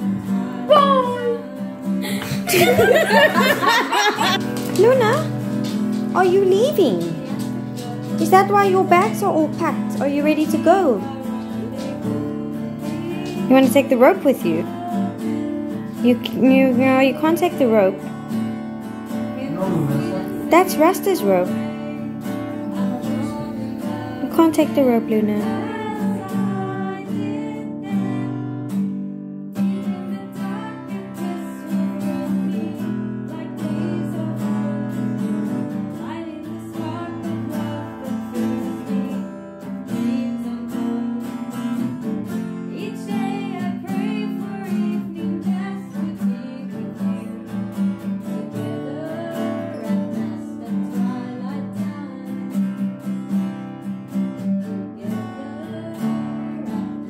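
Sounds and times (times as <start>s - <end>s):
person singing: 0.0s - 5.2s, 6.2s - 18.0s, 19.4s - 28.3s, 29.9s - 34.9s, 55.0s - 57.0s
acoustic guitars strumming: 0.0s - 57.0s.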